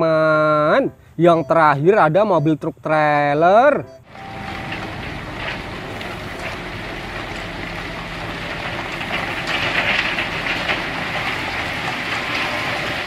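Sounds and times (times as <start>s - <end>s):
diesel truck engine running: 4.0s - 13.0s
crushed stone sliding and rattling: 4.1s - 13.0s.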